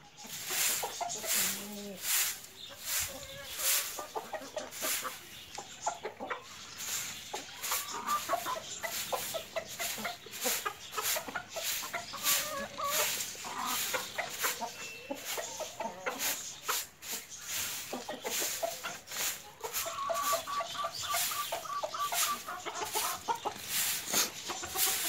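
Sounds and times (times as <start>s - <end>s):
chickens clucking: 0.0s - 25.0s
broom sweeping concrete floor: 0.2s - 25.0s.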